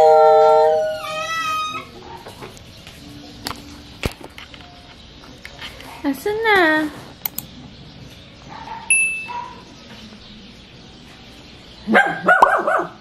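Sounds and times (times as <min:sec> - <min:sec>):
small dog barking and yelping: 0:08.5 - 0:09.7, 0:11.9 - 0:13.0.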